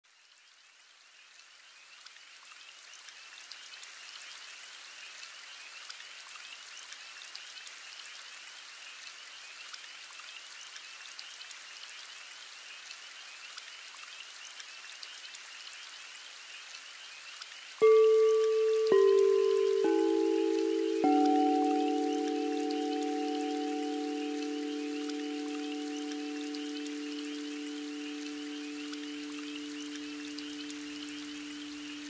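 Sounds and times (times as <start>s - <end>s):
bell-like tone ringing: 17.8s - 32.0s.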